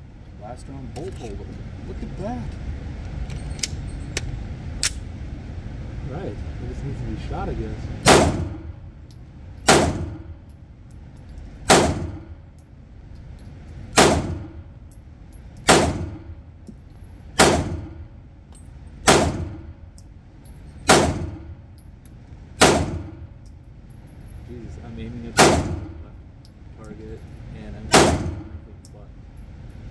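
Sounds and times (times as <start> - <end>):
pistol shots echoing indoors: 8.0 - 8.6, 9.6 - 10.3, 11.7 - 12.4, 14.0 - 14.7, 15.6 - 16.3, 17.4 - 18.1, 19.0 - 19.7, 20.8 - 21.5, 22.6 - 23.3, 25.4 - 26.0, 27.9 - 28.6.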